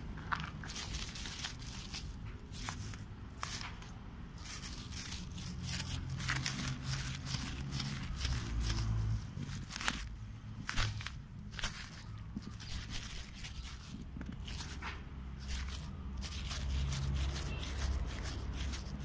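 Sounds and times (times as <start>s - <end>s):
footsteps on gravel: 0.0s - 3.0s.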